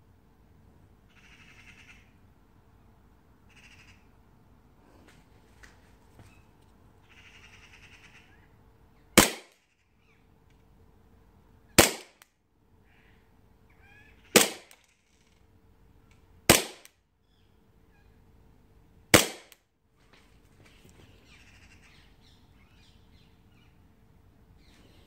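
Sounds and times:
airsoft pistol shots: 9.2 - 9.6, 11.8 - 12.2, 14.4 - 14.8, 16.5 - 17.0, 19.1 - 19.6.

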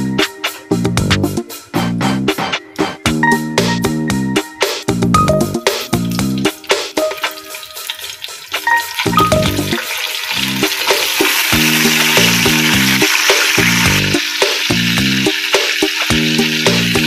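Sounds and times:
background music: 0.0 - 17.0
spice paste sizzling in oil: 5.8 - 17.0.

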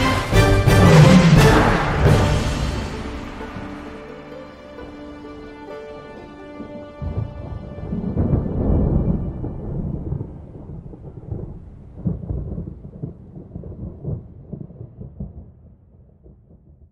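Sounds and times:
deep thunder-like rumble: 6.6 - 16.9.

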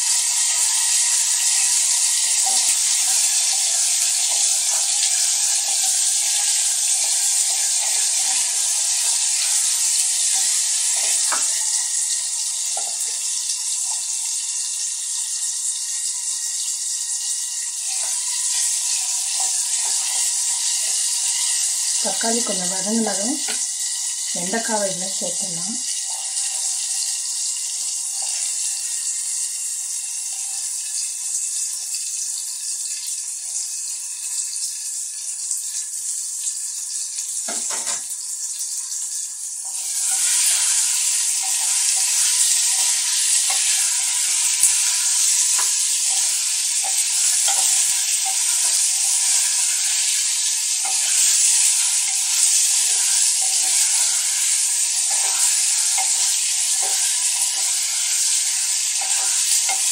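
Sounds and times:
okra sizzling in oil: 0.0 - 59.9.

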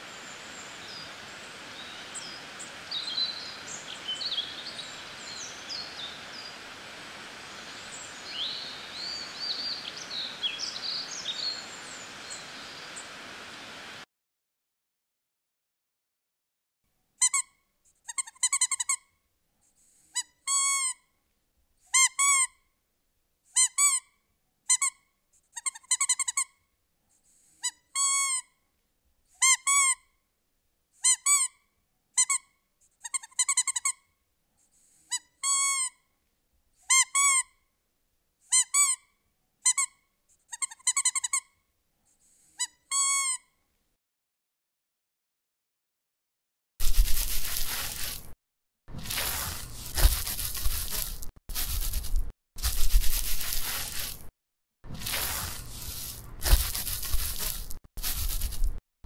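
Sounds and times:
squeaky toy squeaking: 17.2 - 19.0, 20.2 - 21.0, 21.9 - 22.6, 23.6 - 24.1, 24.7 - 26.6, 27.6 - 28.5, 29.4 - 30.1, 31.0 - 31.6, 32.2 - 34.0, 35.1 - 36.0, 36.9 - 37.6, 38.5 - 41.5, 42.6 - 43.5.

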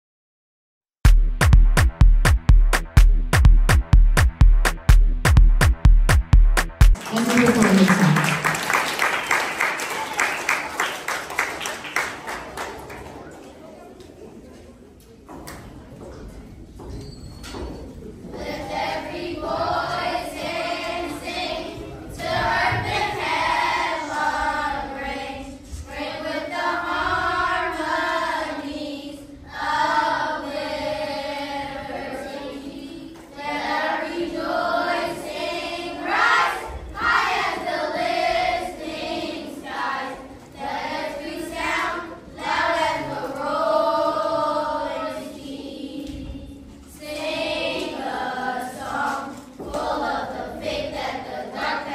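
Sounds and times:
choir singing: 18.3 - 51.9.

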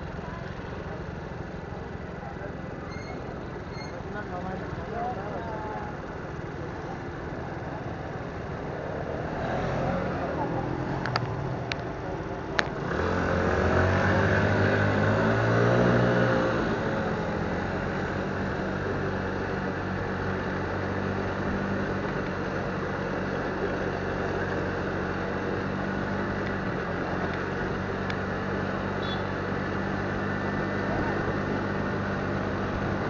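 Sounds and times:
motorcycle engine accelerating: 8.9 - 33.0.

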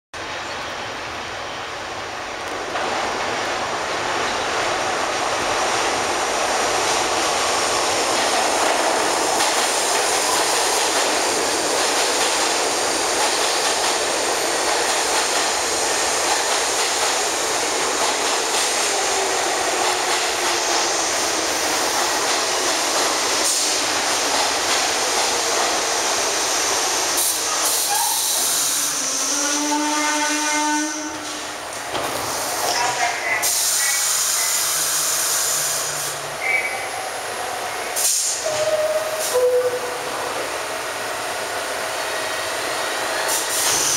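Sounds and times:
train wheels rumbling over rails: 2.0 - 36.2, 37.3 - 43.9
train brakes squealing: 27.2 - 30.1, 38.0 - 40.0.

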